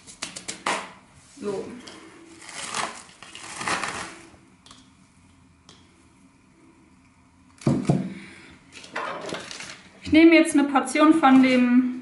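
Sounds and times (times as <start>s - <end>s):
wrapping rustling: 2.2s - 4.4s, 8.8s - 10.0s.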